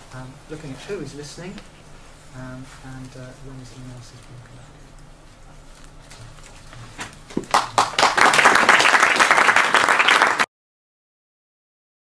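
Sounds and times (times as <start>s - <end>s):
audience applause: 7.4s - 10.5s.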